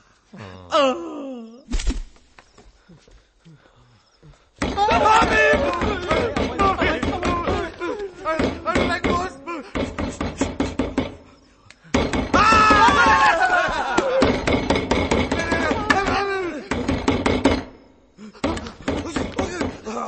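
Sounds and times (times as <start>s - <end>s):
stick whacks: 1.7s - 2.2s
person yelling: 4.7s - 9.6s, 12.3s - 14.2s, 15.3s - 16.8s.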